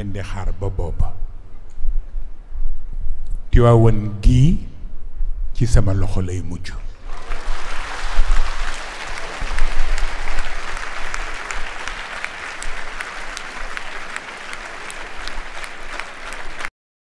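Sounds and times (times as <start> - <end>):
audience applauding: 7.0 - 16.7.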